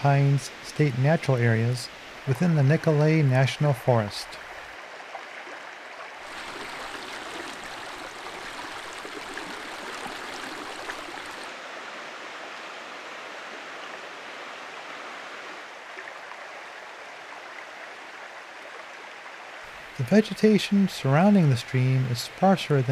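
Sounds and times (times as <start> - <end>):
brook running over rocks: 4.3 - 12.0.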